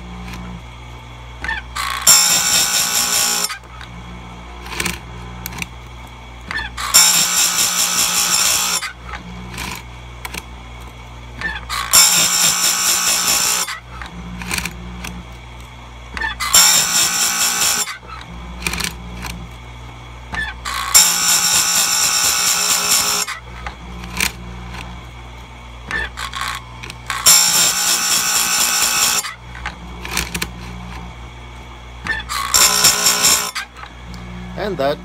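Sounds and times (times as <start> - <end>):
grinder motor hum: 0.0 - 35.0
grinding wheel hissing on chain: 1.4 - 3.9, 6.5 - 10.4, 11.4 - 14.6, 16.2 - 19.3, 20.3 - 24.3, 25.9 - 30.4, 32.0 - 33.9.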